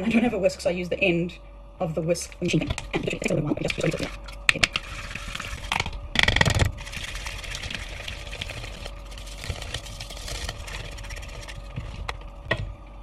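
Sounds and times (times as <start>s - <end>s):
whisk scraping and clicking in bowl: 6.4s - 12.3s.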